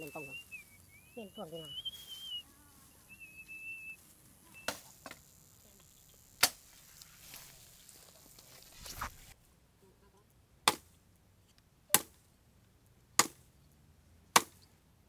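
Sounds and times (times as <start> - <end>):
sharp chopping strikes: 6.4 - 6.6, 10.6 - 10.9, 11.9 - 12.2, 13.2 - 13.4, 14.4 - 14.6.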